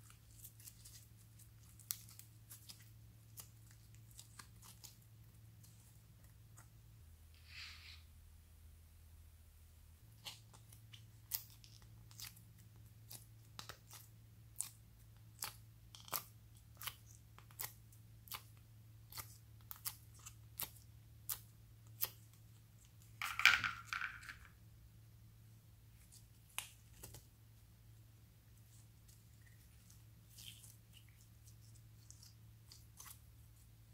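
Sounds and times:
slime crackling squish: 28.6 - 33.6.

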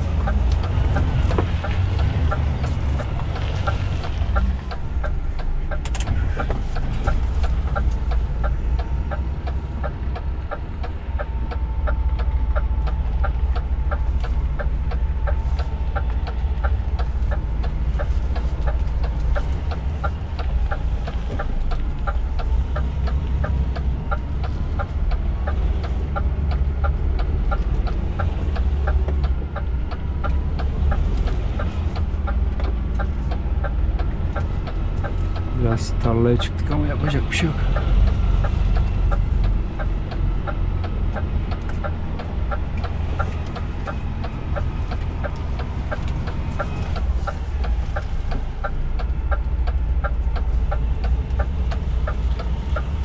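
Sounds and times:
diesel engine rumbling: 0.0 - 53.0
rapid even ticking: 0.0 - 53.0.

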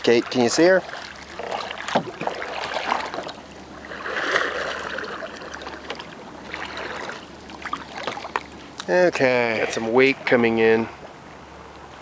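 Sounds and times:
water trickling off paddle: 0.0 - 8.9
paddle splashing water: 0.0 - 10.0.

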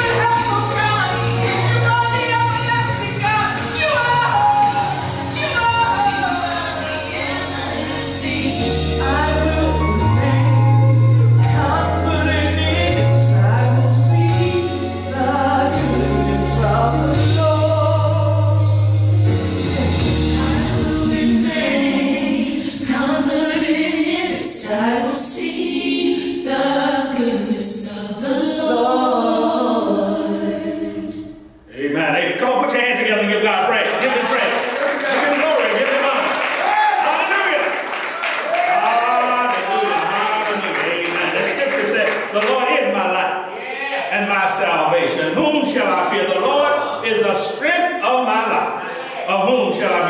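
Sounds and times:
woman singing gospel song: 0.0 - 18.9, 19.6 - 31.4
musical accompaniment: 0.0 - 27.3.

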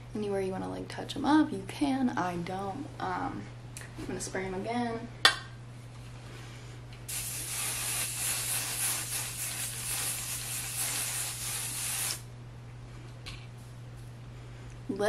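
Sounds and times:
aerosol spray hissing: 7.1 - 12.3.

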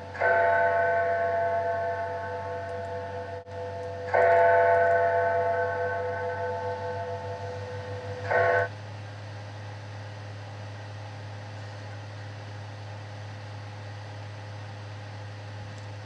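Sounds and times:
low hum and hiss: 0.0 - 16.0
bell ringing: 0.2 - 8.7.

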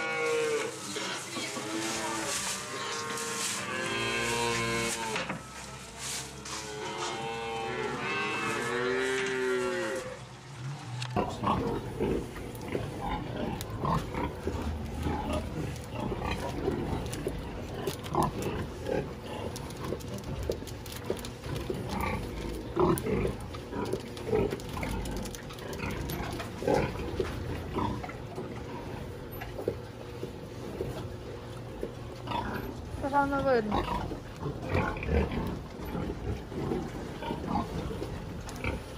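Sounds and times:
pig barn din: 0.0 - 38.9
pig grunts: 11.2 - 20.4, 21.4 - 29.9, 31.8 - 33.0, 33.6 - 38.9.

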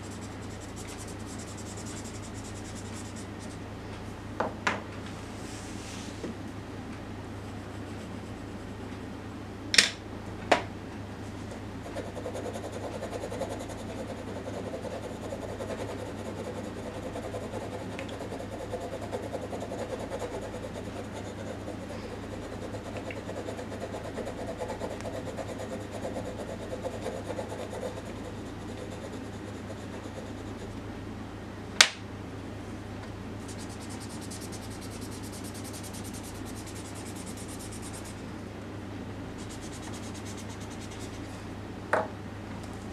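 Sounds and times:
pencil scratching on paper: 0.0 - 3.6, 11.8 - 30.7, 33.5 - 38.2, 39.4 - 41.3
low steady hum: 0.0 - 42.9.

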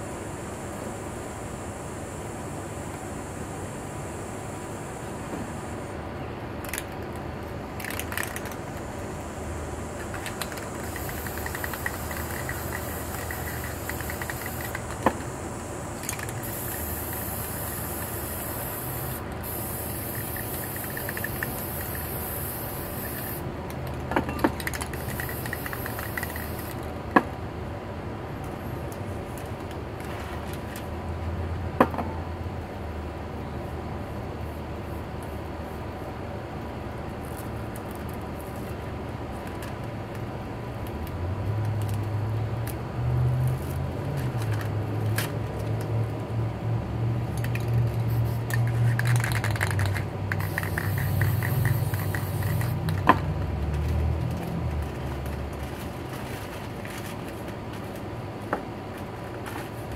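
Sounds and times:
spray can hissing: 7.8 - 23.4, 24.6 - 26.8, 48.0 - 53.0.

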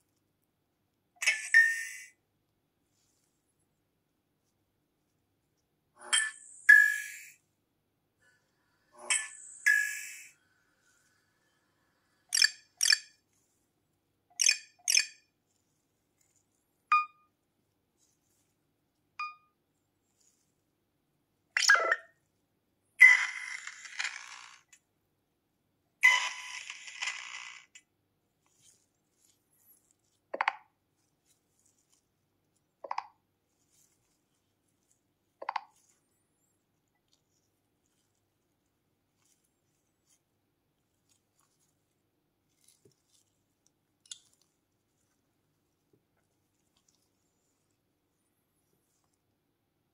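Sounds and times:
electronic beep: 1.3 - 2.1, 6.1 - 7.4, 16.9 - 17.2, 21.6 - 22.1
gloved fingers tapping a phone: 30.4 - 30.7, 35.4 - 35.9.

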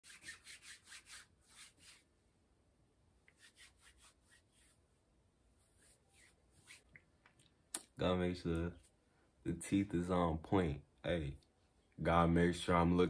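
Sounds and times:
faint quick rubbing strokes: 0.0 - 2.1, 3.3 - 7.0.

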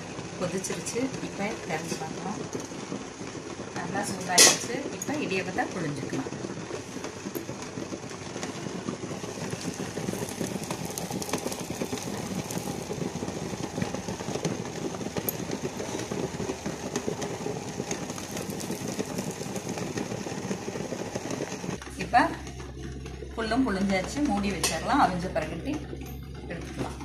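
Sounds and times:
water boiling hard in pot: 0.0 - 27.0.

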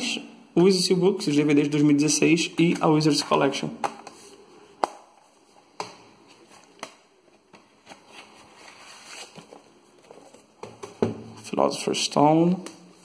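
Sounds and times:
soft rustling: 5.2 - 10.6.

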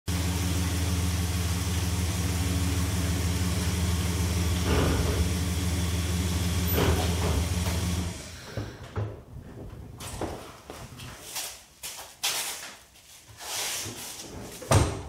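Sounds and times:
truck engine running: 0.1 - 8.4.

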